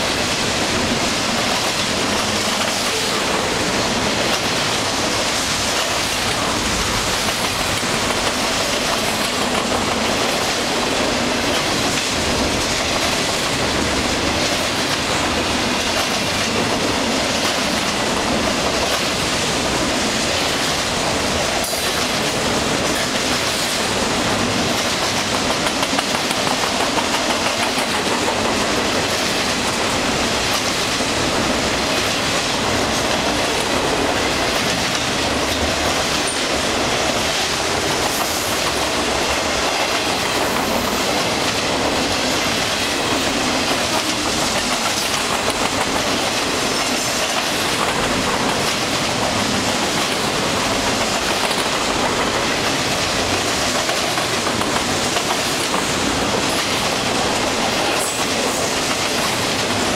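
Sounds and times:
steel train wheels rumbling on rail: 0.0s - 59.9s
wheels clacking over rail joint: 0.0s - 59.9s.

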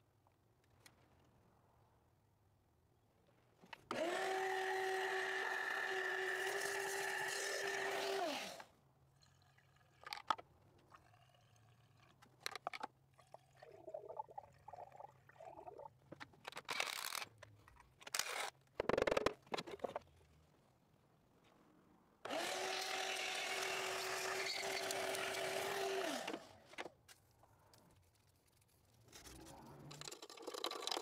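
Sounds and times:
small electric motor whirring: 3.9s - 8.7s, 22.3s - 26.5s.

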